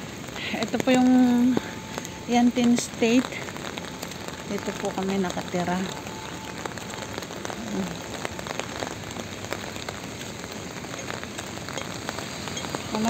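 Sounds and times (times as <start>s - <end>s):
rain on pavement: 0.0s - 13.0s.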